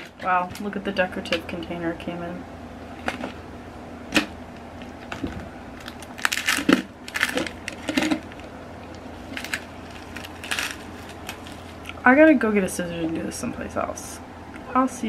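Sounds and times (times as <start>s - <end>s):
plastic clicks and crinkles: 4.8s - 12.0s.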